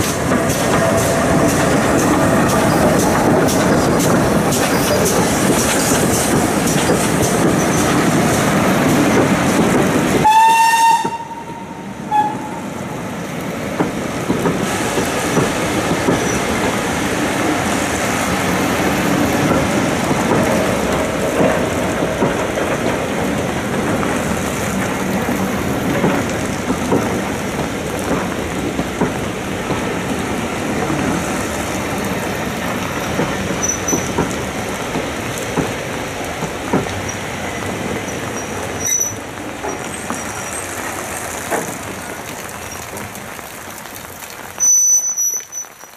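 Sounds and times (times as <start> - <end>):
steam locomotive running: 0.0 - 43.1
carriages rumbling over rail joints: 0.0 - 44.6
steam whistle: 10.2 - 12.6.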